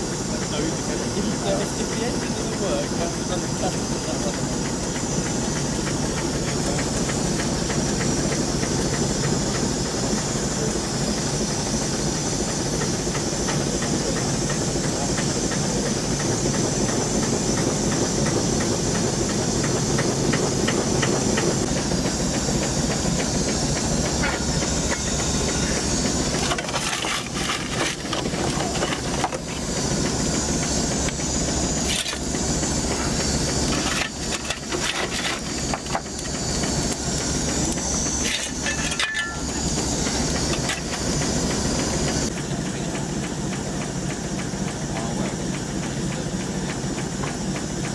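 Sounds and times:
fast steam engine beat: 0.0 - 47.9
steam hissing: 0.0 - 47.9
sharp knocks and clatters: 23.2 - 29.7, 38.2 - 41.1.

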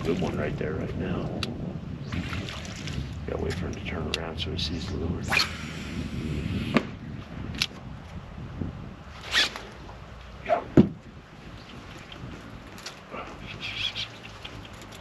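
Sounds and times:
low thump of rod: 10.7 - 11.0.

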